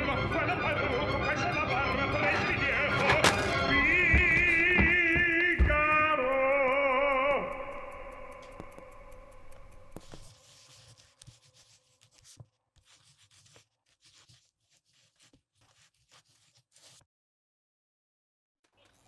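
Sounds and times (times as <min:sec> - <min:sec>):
music: 0:00.0 - 0:10.2
pen nib scratching on paper: 0:09.5 - 0:17.0.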